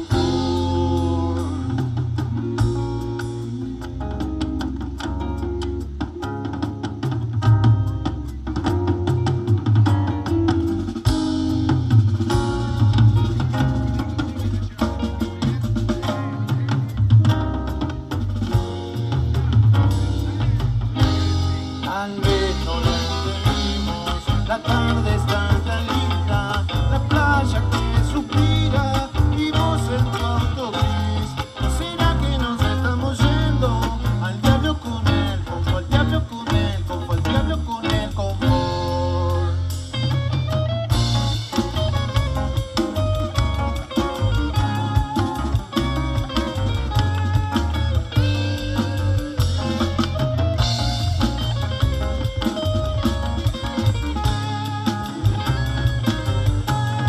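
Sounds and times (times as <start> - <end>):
bass guitar: 0.0 - 57.0
drum kit: 0.0 - 57.0
electric guitars: 0.0 - 57.0.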